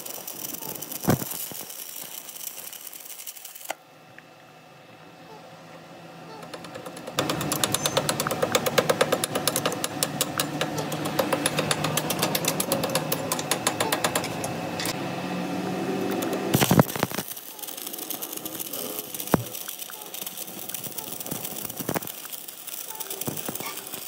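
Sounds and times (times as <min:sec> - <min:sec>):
arc welding crackling hiss: 0:00.0 - 0:03.8, 0:15.9 - 0:24.0
metal lathe ticking: 0:06.9 - 0:14.5.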